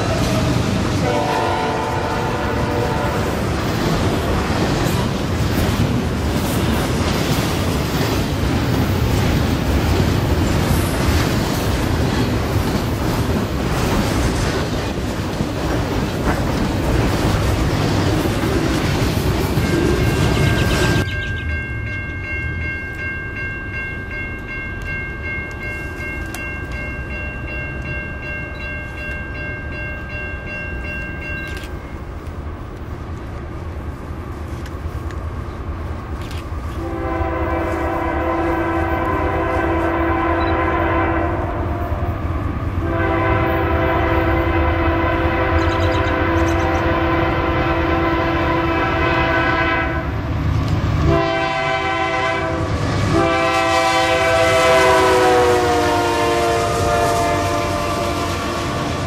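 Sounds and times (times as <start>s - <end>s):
distant train horn chord: 0.0s - 3.6s, 36.7s - 50.2s, 51.0s - 59.0s
locomotive air horn blasts: 0.0s - 3.6s, 36.8s - 42.1s, 42.8s - 50.2s, 51.0s - 59.0s
low rumble of train: 0.0s - 59.0s.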